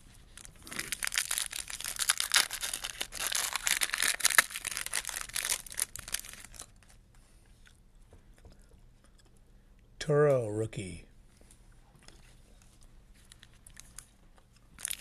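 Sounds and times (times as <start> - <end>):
foil wrapper tearing and crinkling: 0.4 - 7.0, 14.8 - 15.0.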